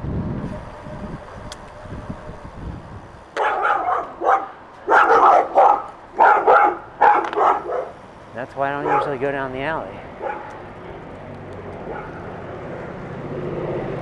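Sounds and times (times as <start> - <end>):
wind rumbling on microphone: 0.0 - 5.0
dog barking loudly: 3.4 - 8.0, 8.8 - 9.2, 10.2 - 10.6, 11.9 - 12.3.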